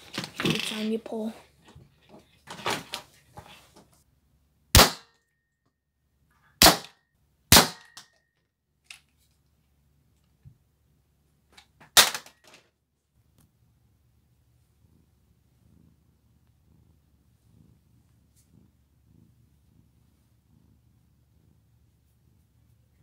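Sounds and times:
foam dart pistol snaps: 0:04.8 - 0:05.1
clicks of toy gun handling: 0:08.8 - 0:09.2, 0:11.5 - 0:12.6.

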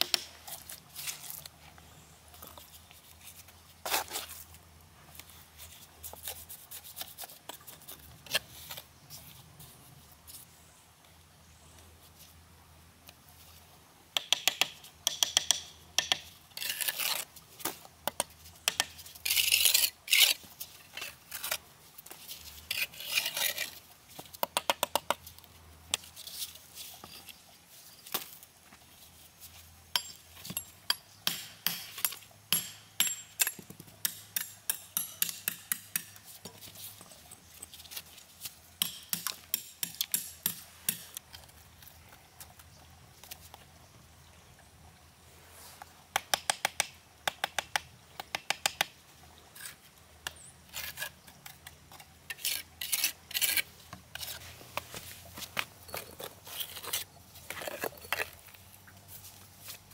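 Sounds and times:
quick metal taps on bricks: 0:14.2 - 0:16.3, 0:29.9 - 0:36.6, 0:38.8 - 0:41.2
trowel scraping mortar: 0:16.6 - 0:17.3, 0:18.9 - 0:21.6, 0:22.4 - 0:23.8, 0:50.7 - 0:58.6.

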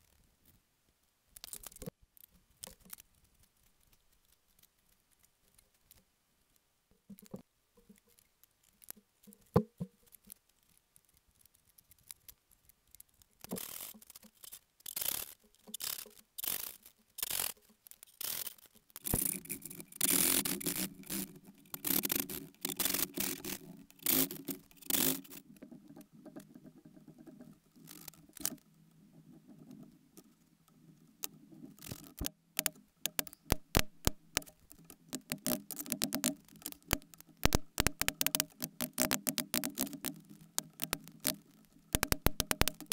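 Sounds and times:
faint scratching of marking: 0:02.6 - 0:32.3
backsaw cutting wood: 0:19.0 - 0:25.4.

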